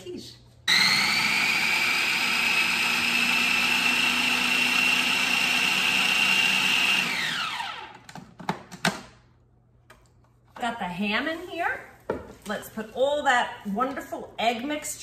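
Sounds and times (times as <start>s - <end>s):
food processor motor whine: 0.7s - 8.1s.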